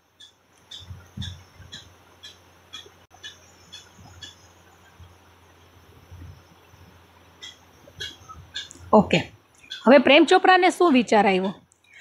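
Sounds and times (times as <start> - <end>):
small animal chirping: 0.2 - 4.6, 7.4 - 8.9, 9.6 - 10.0.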